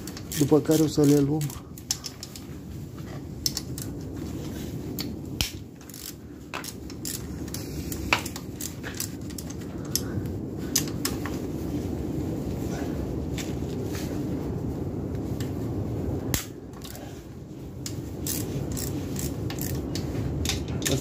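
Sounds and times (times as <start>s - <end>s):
steady low rumble: 0.0s - 21.0s
socket wrench clicking on bolts: 5.4s - 10.0s, 17.8s - 21.0s.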